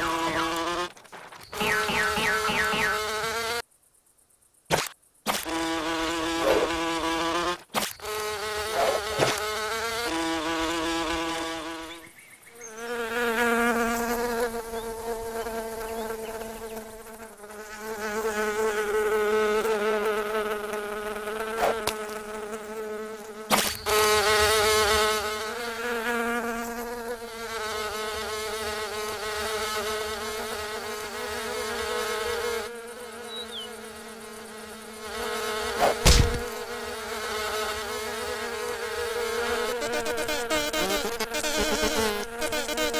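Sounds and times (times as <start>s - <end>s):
insect wings buzzing: 0.0s - 42.9s
sharp knocks: 35.8s - 36.5s.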